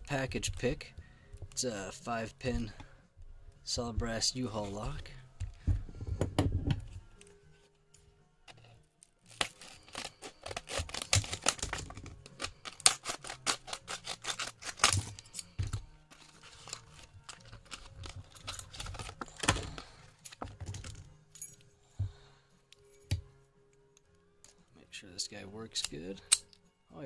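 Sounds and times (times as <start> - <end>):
plastic packaging being torn open: 9.2 - 20.0.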